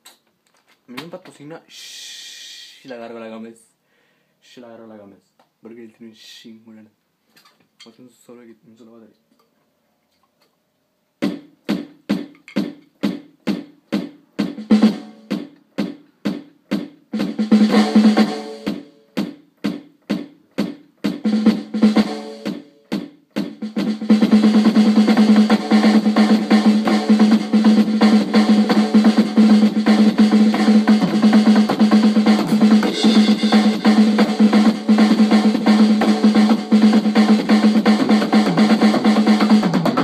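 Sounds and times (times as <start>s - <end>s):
electronic drum hits: 11.2s - 19.4s, 20.1s - 40.0s.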